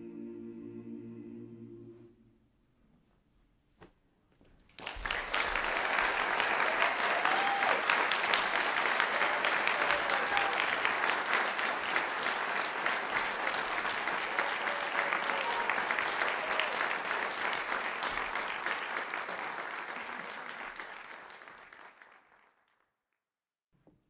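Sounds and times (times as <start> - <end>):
audience applause: 4.7 - 22.8
crowd whooping: 5.6 - 11.1, 14.0 - 17.2.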